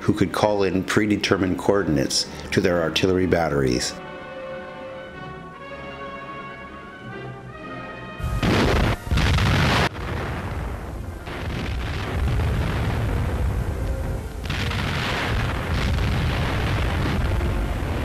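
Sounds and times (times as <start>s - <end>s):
orchestral music: 2.6s - 9.9s
artillery blasts: 8.2s - 18.0s
rumble of shelling: 8.2s - 18.0s.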